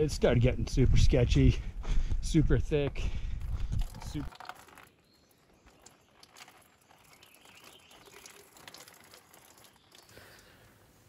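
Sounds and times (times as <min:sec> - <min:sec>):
soft crackles: 0:02.9 - 0:11.0.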